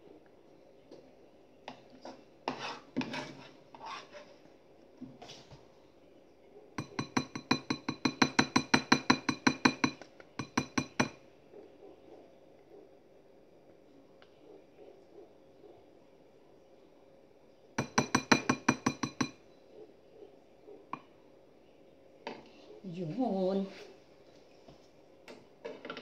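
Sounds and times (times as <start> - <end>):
metal spoon scraping frying pan: 2.0 - 4.4.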